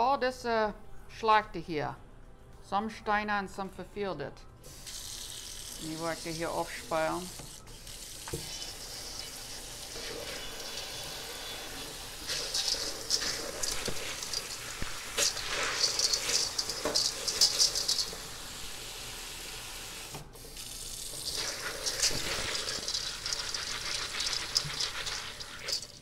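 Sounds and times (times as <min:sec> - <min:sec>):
faucet water running: 0:04.7 - 0:26.0
beans rattling in colander: 0:12.2 - 0:18.4, 0:21.2 - 0:26.0.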